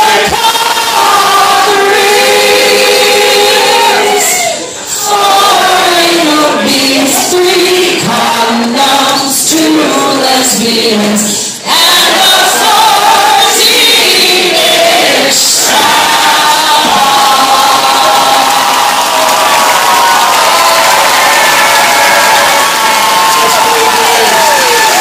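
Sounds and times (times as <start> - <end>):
group of voices singing: 0.0 - 22.7.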